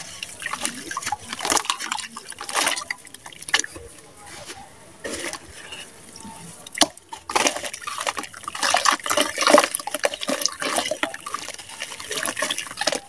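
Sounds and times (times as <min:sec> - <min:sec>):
water dripping and splashing: 0:00.0 - 0:03.8, 0:06.6 - 0:13.0.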